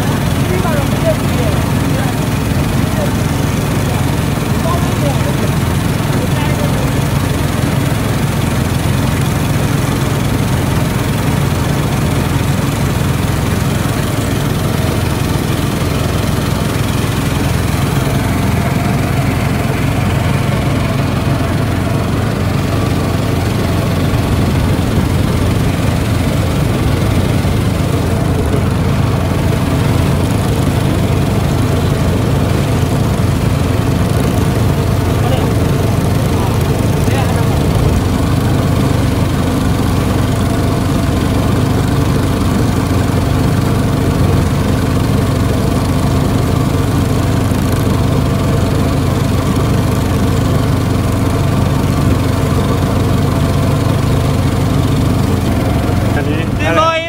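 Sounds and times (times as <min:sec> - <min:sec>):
small boat engine running: 0:00.0 - 0:57.0.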